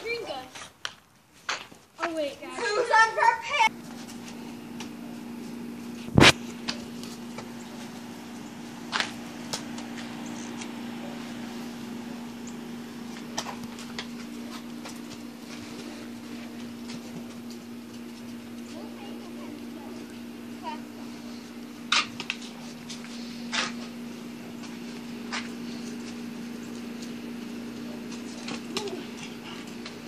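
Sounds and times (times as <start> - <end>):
steady low hum: 3.4 - 30.0.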